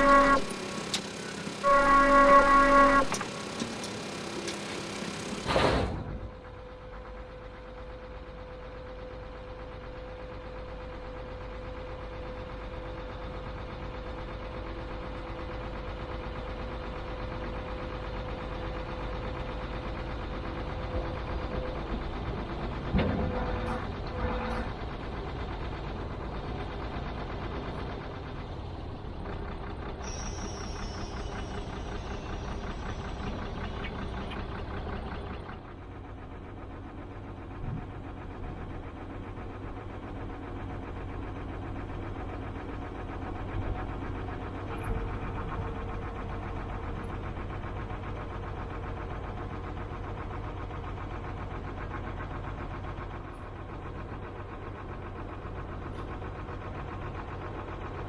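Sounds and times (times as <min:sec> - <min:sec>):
diesel truck engine idling: 0:00.0 - 0:58.0.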